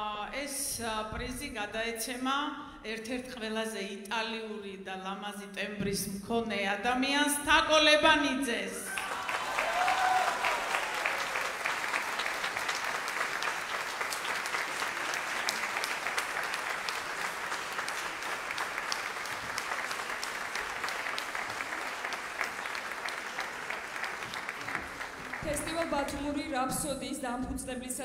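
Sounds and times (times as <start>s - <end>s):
audience applause: 8.9s - 26.2s.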